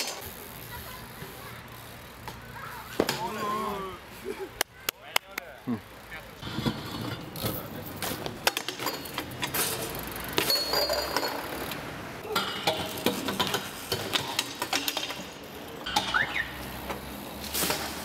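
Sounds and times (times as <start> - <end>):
bike clanking on metal rail: 6.4 - 18.0.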